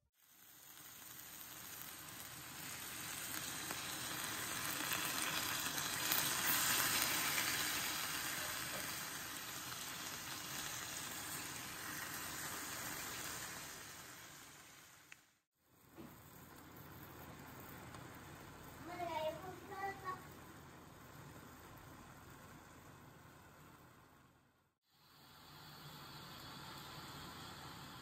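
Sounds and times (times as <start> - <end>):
meat sizzling in a pan: 0.2 - 21.4.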